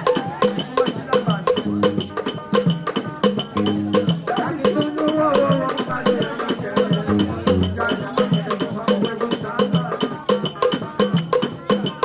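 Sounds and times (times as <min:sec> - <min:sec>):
low drum notes: 0:01.6 - 0:02.2, 0:03.5 - 0:04.4, 0:06.9 - 0:08.2
group singing: 0:03.6 - 0:10.7.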